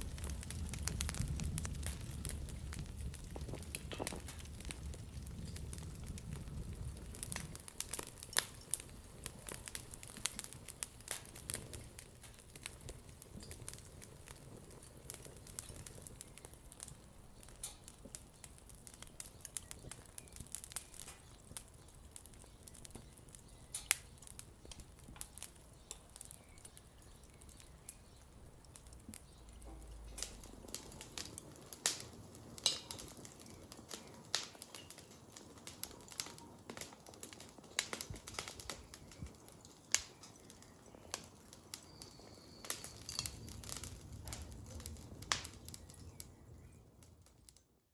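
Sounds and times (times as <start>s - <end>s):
sharp pops and snaps: 0.0s - 46.4s
low hiss of fire: 0.0s - 47.8s
wood fire crackling: 0.0s - 47.9s.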